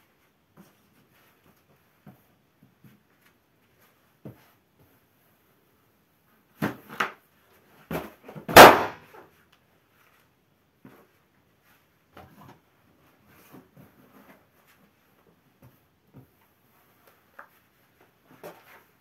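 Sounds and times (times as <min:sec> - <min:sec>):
balloon bursting pop: 0:08.5 - 0:09.0.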